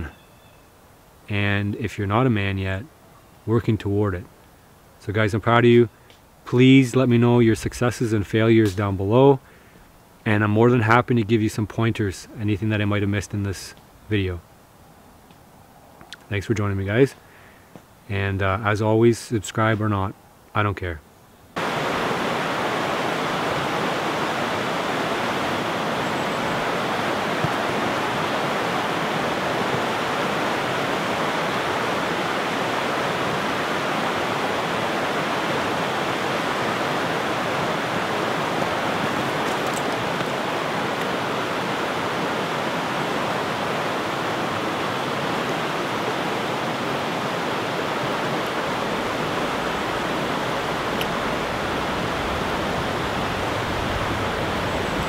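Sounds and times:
river rushing over rapids: 0:21.6 - 0:55.0.

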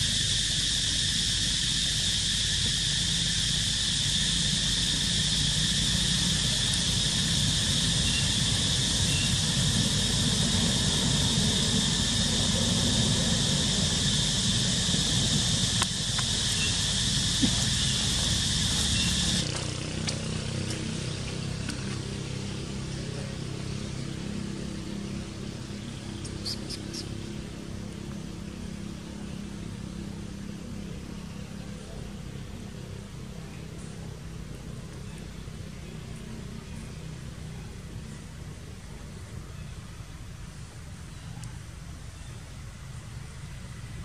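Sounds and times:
high-pitched drone: 0:00.0 - 0:19.9
low hum: 0:00.0 - 0:37.0
rushing low rumble: 0:01.2 - 0:26.4.

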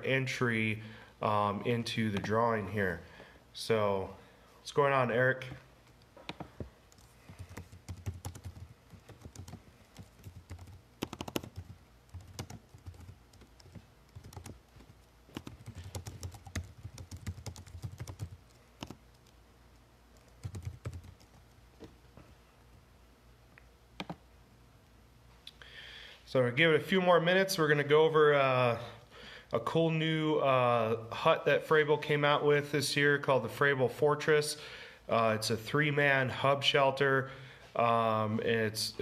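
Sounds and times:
keyboard typing: 0:06.3 - 0:19.4, 0:20.2 - 0:21.6, 0:24.0 - 0:24.2.

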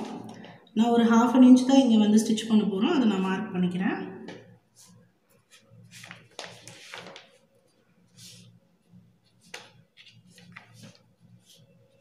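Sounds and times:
paper rustling: 0:04.7 - 0:12.0
pencil tapping and scratching: 0:09.2 - 0:11.8.

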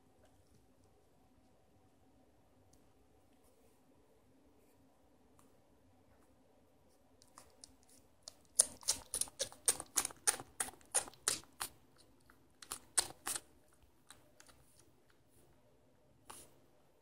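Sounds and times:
puppy suckling wet smacking: 0:08.3 - 0:11.8.

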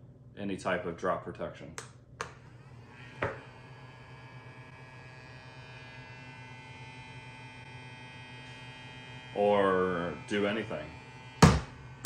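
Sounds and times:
robot vacuum motor humming: 0:02.4 - 0:12.0
knock: 0:11.4 - 0:11.7.

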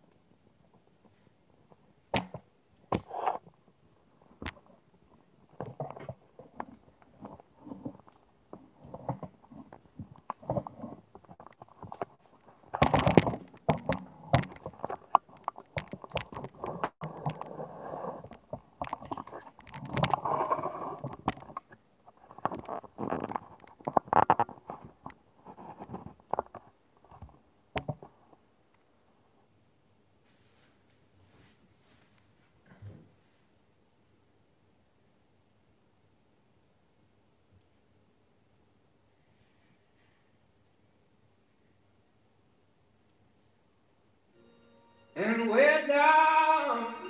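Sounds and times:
camera handling knocks and rustles: 0:10.0 - 0:17.5.

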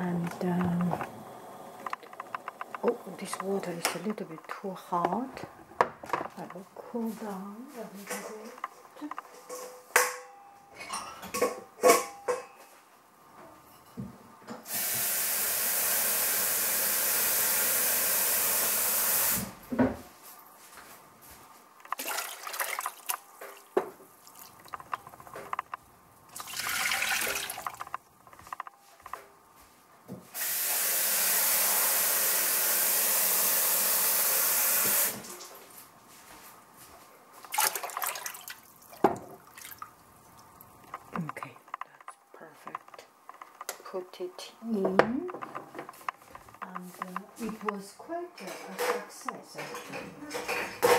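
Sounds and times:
crockery clinking: 0:09.2 - 0:12.8
water running from a tap: 0:26.4 - 0:27.8, 0:30.4 - 0:35.4, 0:37.5 - 0:39.9.

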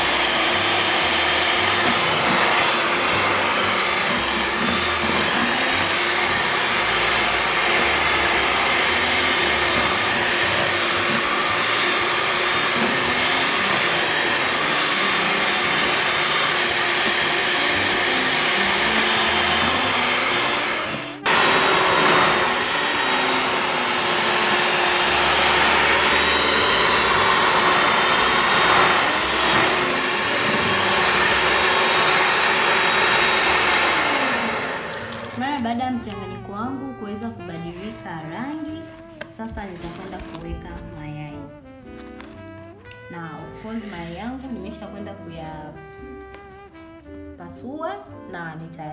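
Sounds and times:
electric hand mixer running: 0:00.0 - 0:37.0.

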